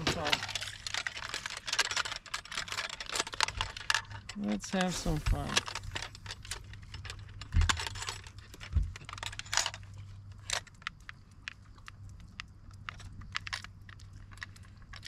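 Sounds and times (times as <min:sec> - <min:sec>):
fish scale clicking and rattling: 0:00.0 - 0:15.0.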